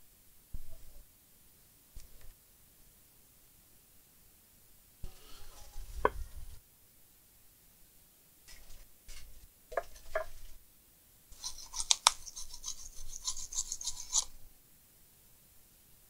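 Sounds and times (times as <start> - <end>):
small brush scrubbing: 11.3 - 14.4.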